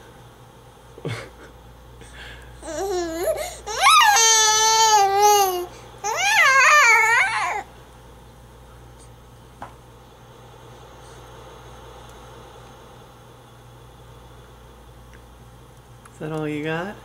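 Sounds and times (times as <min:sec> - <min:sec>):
baby squealing and cooing: 0:02.6 - 0:07.7.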